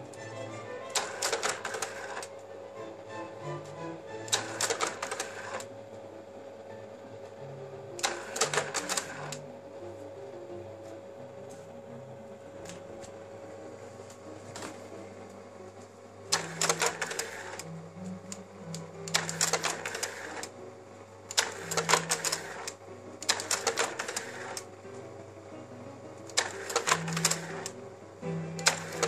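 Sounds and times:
slide changer clicking and whirring: 0.0s - 11.6s, 12.3s - 29.0s
slide projector humming: 0.0s - 29.0s.

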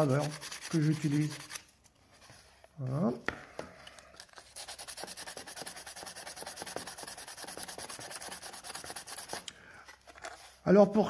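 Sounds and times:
sandpaper rubbing on plastic: 0.0s - 1.7s, 4.5s - 9.4s.

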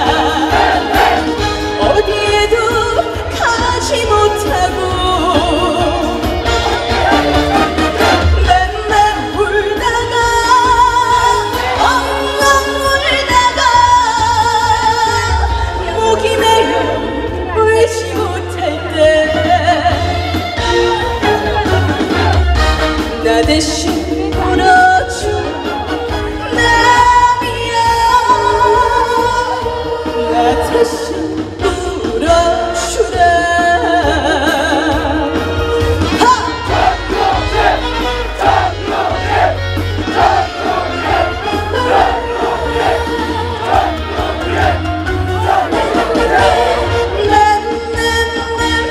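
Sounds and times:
woman singing into microphone: 0.0s - 0.9s, 1.8s - 6.3s, 8.4s - 20.4s, 23.2s - 25.8s, 26.4s - 37.1s, 46.1s - 48.9s
band backing track: 0.0s - 48.9s.

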